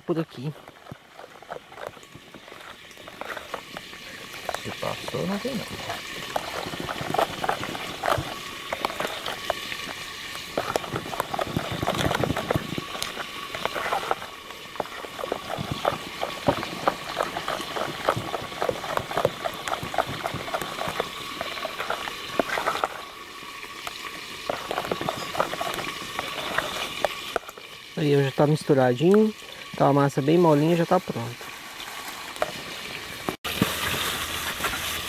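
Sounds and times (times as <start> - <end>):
utensil scraping bowl: 0.2 - 27.8
wet batter squelching: 0.3 - 28.3.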